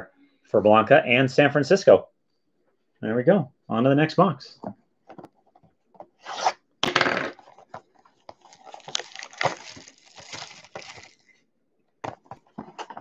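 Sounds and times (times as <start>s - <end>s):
shrink wrap crinkling: 7.5s - 11.4s
shrink wrap ripping: 8.4s - 11.3s.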